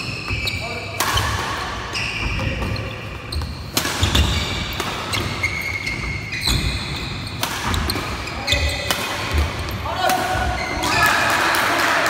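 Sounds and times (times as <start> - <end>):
shoes squeaking on court: 0.0 - 9.8
racket hitting shuttlecock: 1.0 - 1.8, 3.4 - 11.7.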